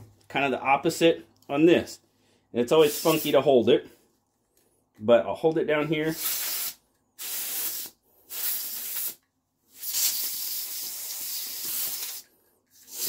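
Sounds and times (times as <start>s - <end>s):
compressed air hissing: 2.8s - 3.4s, 6.0s - 13.0s.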